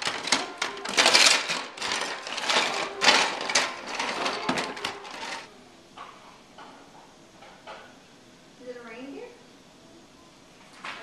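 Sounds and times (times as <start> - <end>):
plastic toys clattering: 0.0 - 5.5.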